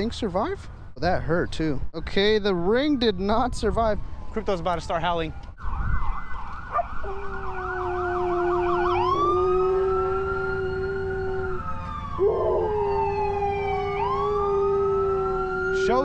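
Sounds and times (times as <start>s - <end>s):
ambulance siren: 2.0s - 16.0s
dog howling: 6.7s - 16.0s.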